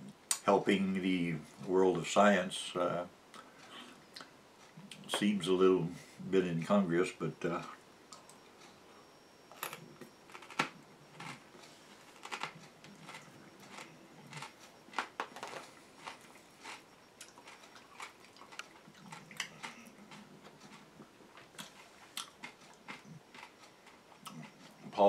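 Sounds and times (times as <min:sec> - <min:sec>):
person chewing: 0:10.0 - 0:24.9.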